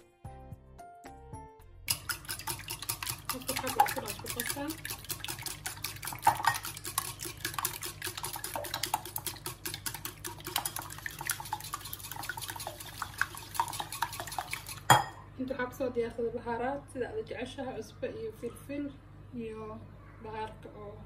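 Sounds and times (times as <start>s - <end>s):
whisk clinking against bowl: 1.9s - 15.2s.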